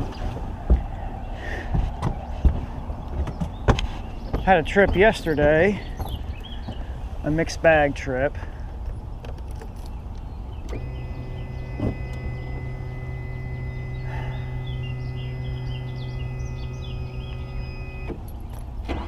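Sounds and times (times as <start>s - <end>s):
birds chirping faintly: 0.0s - 18.7s
mechanical hum: 10.6s - 18.3s.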